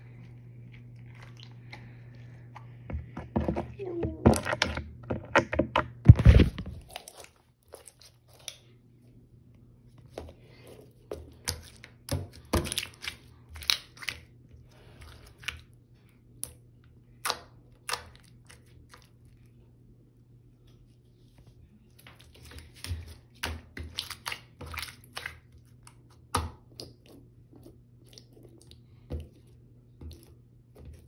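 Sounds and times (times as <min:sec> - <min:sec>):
knocks and rustles: 0:02.9 - 0:06.8.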